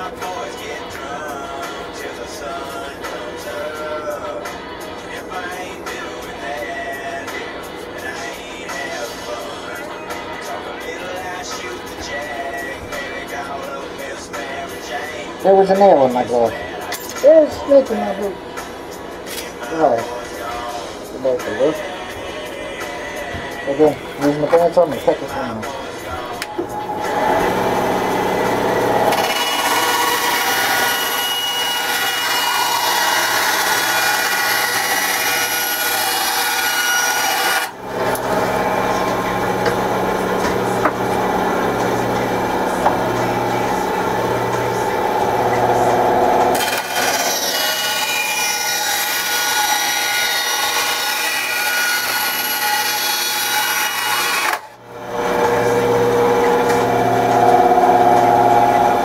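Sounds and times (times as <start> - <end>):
bandsaw motor hum: 24.2 - 59.0.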